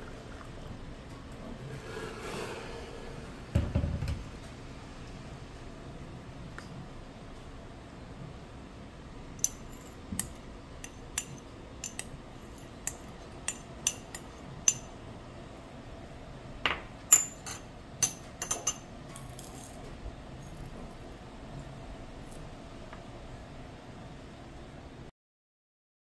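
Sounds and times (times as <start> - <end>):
spoon clinking on ceramic and glass: 9.4 - 14.9, 17.1 - 19.7.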